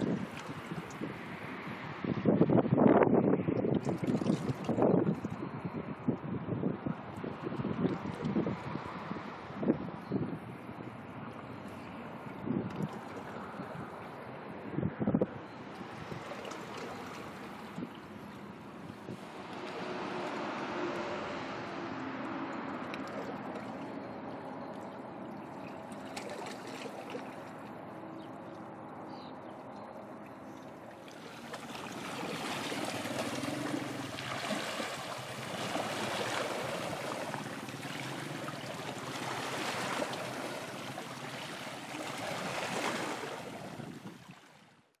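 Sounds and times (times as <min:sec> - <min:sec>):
waves washing against rocks: 0:15.9 - 0:23.7, 0:31.1 - 0:44.2.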